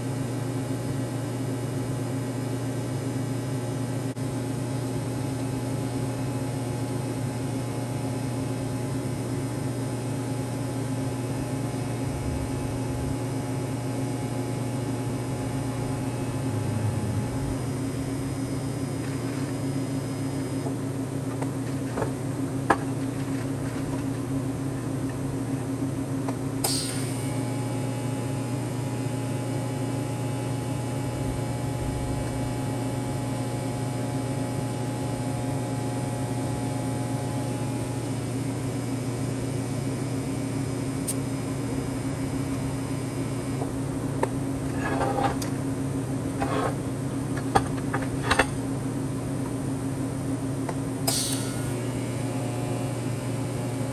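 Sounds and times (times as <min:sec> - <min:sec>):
steady machine hum: 0:00.0 - 0:53.9.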